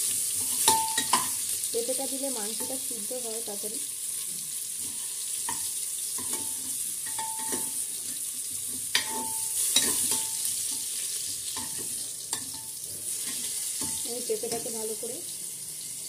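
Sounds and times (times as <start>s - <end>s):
food sizzling in oil: 0.0s - 16.0s
metal spatula clinking on pot: 0.4s - 1.4s, 5.4s - 7.8s, 8.9s - 10.9s, 11.6s - 14.8s.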